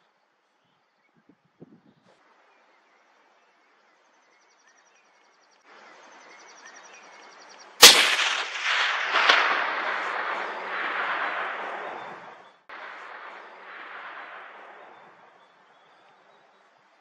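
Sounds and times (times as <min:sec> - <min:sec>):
rifle shot: 0:07.8 - 0:15.0
gunshot echo off hillsides: 0:07.8 - 0:15.5
sharp crack: 0:07.8 - 0:15.5.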